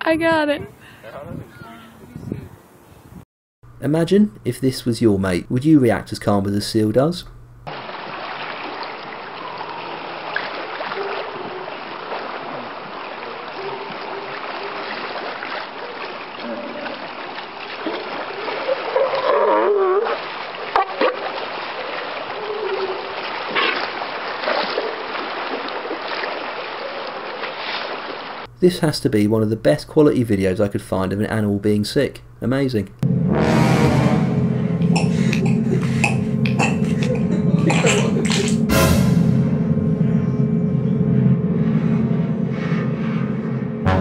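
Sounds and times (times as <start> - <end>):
water lapping against rock: 7.7 - 28.5.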